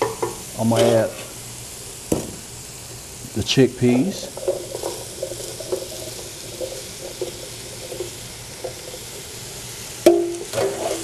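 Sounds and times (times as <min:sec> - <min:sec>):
vegetables sizzling in a pot: 0:00.0 - 0:11.0
wooden spoon stirring: 0:04.3 - 0:09.3
chickpeas sliding into pot: 0:10.4 - 0:11.0.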